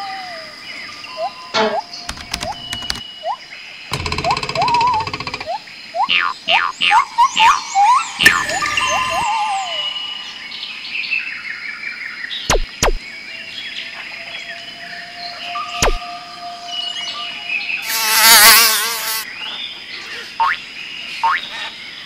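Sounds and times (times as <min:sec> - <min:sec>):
chirping electronic tones: 0:01.1 - 0:10.0
sharp clicks: 0:02.1 - 0:03.1, 0:03.9 - 0:05.6.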